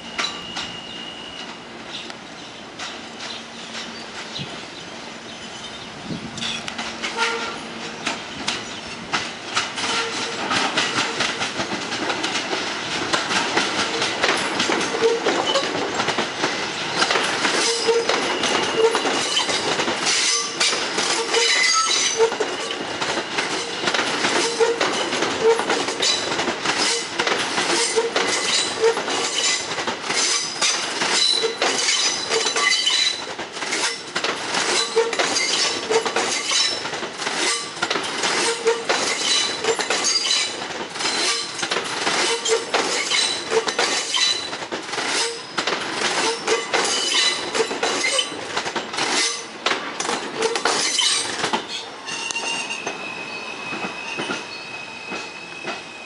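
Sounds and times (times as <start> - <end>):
high wheel squeals: 0.0 - 1.7, 17.6 - 26.2, 50.4 - 56.0
train wheels clicking over rail joints: 1.4 - 4.9, 6.2 - 53.1, 53.7 - 55.9.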